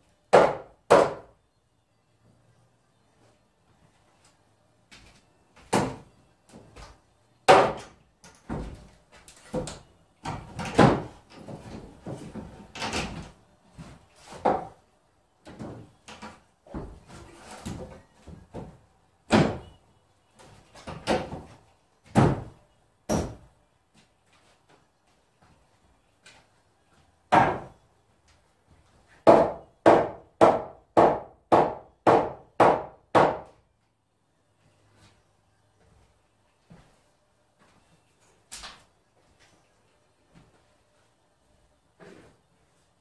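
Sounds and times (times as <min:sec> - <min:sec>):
wooden knocks and thuds: 0:05.6 - 0:14.8, 0:15.4 - 0:19.8, 0:20.4 - 0:23.5, 0:27.3 - 0:27.7.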